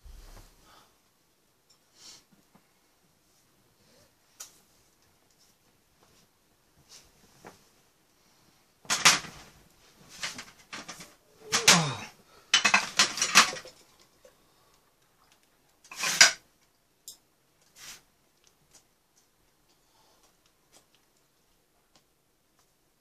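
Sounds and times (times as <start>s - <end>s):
dishes clattering on metal tray: 8.9s - 9.5s, 10.1s - 13.8s, 15.9s - 16.4s.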